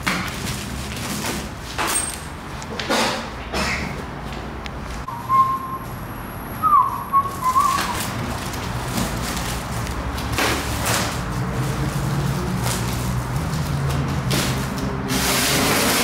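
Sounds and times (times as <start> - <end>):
person whistling: 5.1 - 5.9, 6.6 - 8.1.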